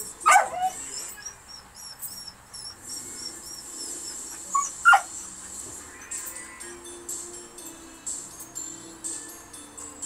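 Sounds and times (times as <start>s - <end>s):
dog barking: 0.2s - 0.8s, 4.6s - 5.1s
dog yipping: 0.2s - 5.1s.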